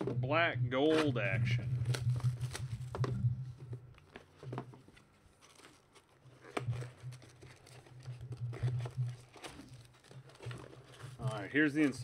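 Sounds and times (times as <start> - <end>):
light rustles of packs: 4.0 - 12.0.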